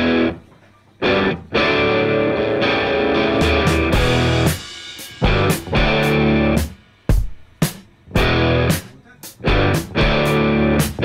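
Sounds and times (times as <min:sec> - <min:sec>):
distorted electric guitar chords: 0:00.0 - 0:06.8, 0:08.1 - 0:11.0
drum hits: 0:03.4 - 0:11.0.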